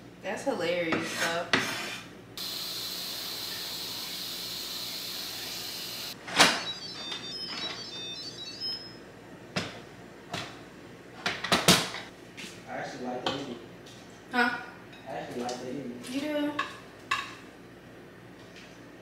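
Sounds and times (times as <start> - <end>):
steady high hiss: 2.4 - 6.2.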